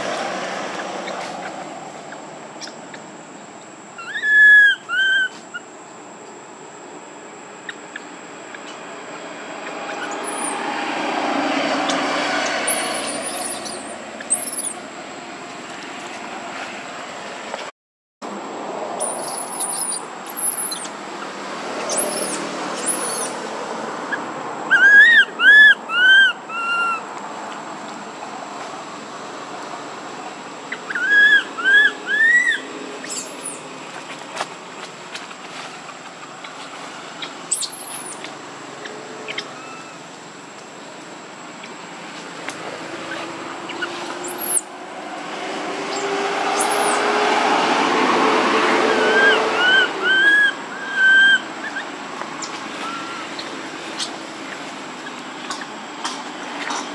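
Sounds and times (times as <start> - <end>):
baby monkey crying: 4.0 - 5.6, 9.6 - 10.6, 12.6 - 14.8, 19.0 - 20.9, 21.8 - 23.4, 24.1 - 27.1, 30.7 - 33.6, 37.2 - 38.4, 39.3 - 40.0, 46.6 - 47.0, 48.8 - 54.6
high bird chirps: 11.8 - 14.8, 19.0 - 21.0, 21.8 - 23.4, 30.7 - 33.6, 37.2 - 40.0, 45.9 - 47.0, 49.0 - 55.7.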